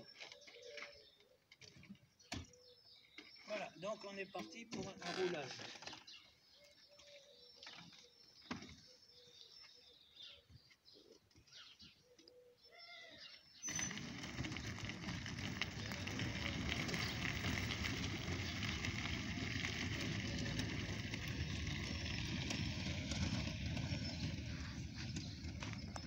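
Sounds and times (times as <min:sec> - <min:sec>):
tyres crunching over gravel: 0:13.6 - 0:26.0.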